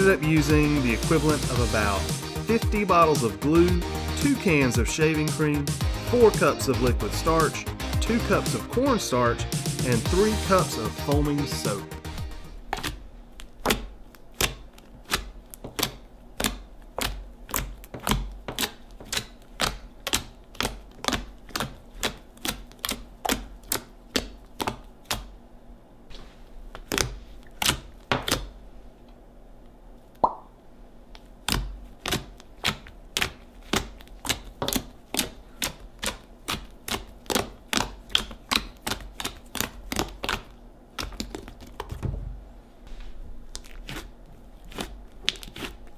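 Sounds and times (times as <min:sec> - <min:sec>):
slime popping clicks: 0:30.2 - 0:30.5.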